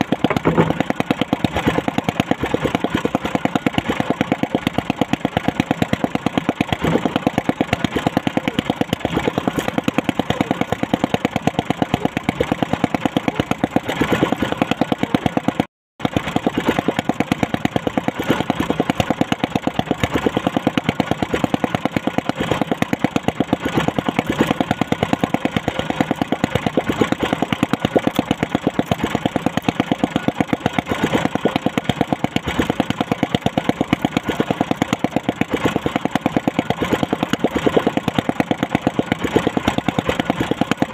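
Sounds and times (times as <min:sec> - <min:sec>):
small boat engine idling: 0:00.0 - 0:40.9.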